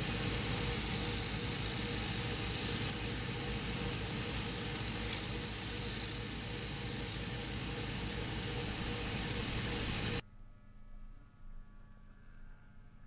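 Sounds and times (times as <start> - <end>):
spinning brushes hissing: 0.0 - 10.2.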